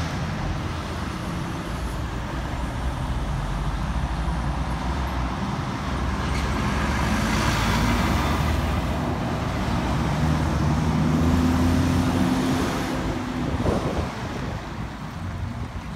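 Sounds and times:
tyre and traffic noise: 0.0 - 15.9.

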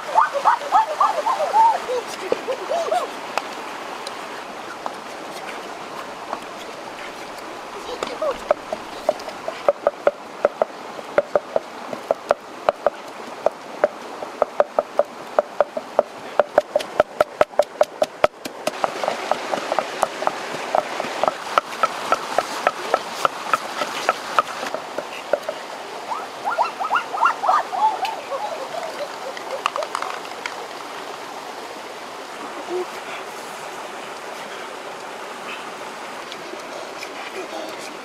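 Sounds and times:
stream rushing: 0.0 - 38.0
pestle pounding in wooden mortar: 8.4 - 25.1.

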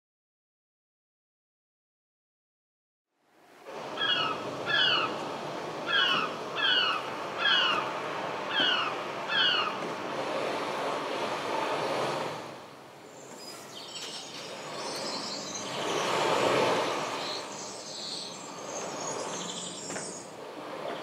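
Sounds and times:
high bird chirps: 13.2 - 16.0, 17.0 - 20.3.

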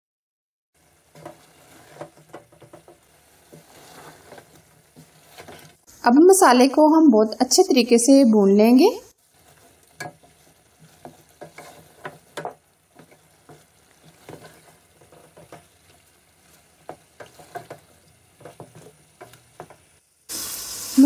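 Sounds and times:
wooden spoon scraping a pot: 0.8 - 5.9, 9.1 - 20.0
meat sizzling in oil: 0.8 - 6.8, 8.8 - 21.0.

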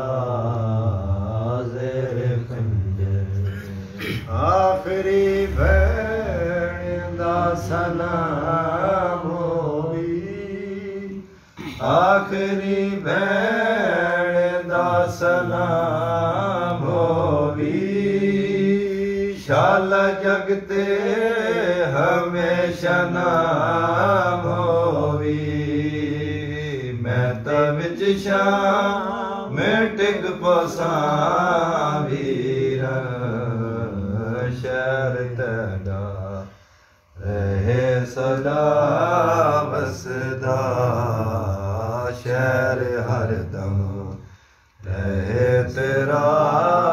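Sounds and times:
man singing a lament unaccompanied: 0.0 - 36.6, 37.2 - 46.9.

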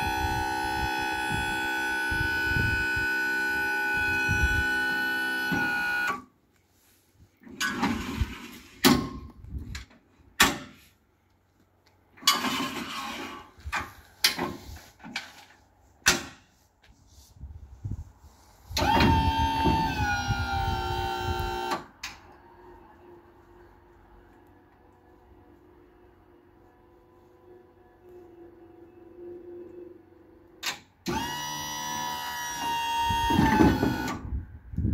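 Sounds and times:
electric motor whine: 0.0 - 6.2, 18.8 - 21.7, 31.1 - 34.2.

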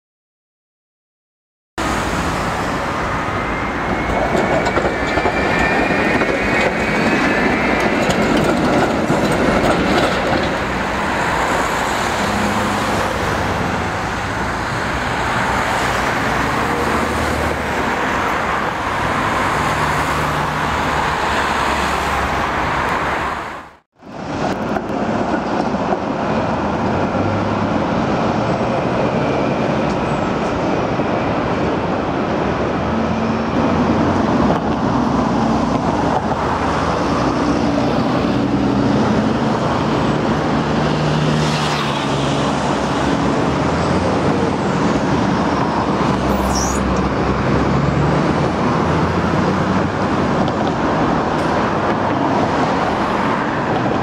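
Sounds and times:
tram rumbling on rails: 1.8 - 54.0
faint high whining: 46.2 - 47.0.

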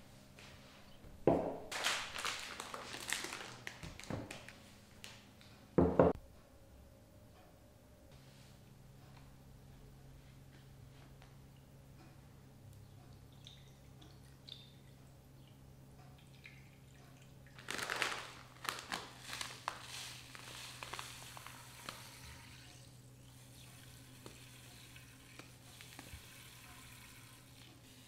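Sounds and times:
paper bag rustling: 1.7 - 4.5, 17.6 - 22.2
sugar pouring into milk: 19.5 - 28.0.

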